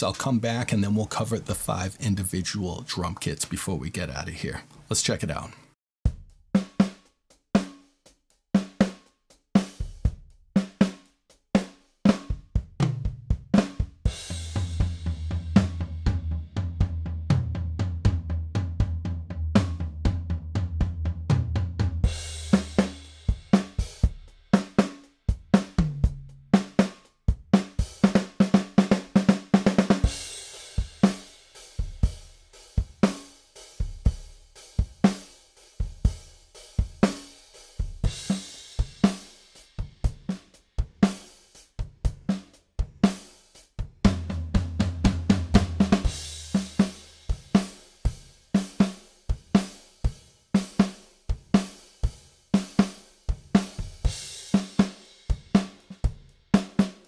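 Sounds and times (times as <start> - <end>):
kick drum: 6.1 - 6.5, 12.3 - 14.2
snare drum: 6.1 - 15.9, 21.3 - 32.1, 32.8 - 33.4, 36.8 - 43.4, 44.0 - 48.0, 48.6 - 49.9, 52.6 - 57.0.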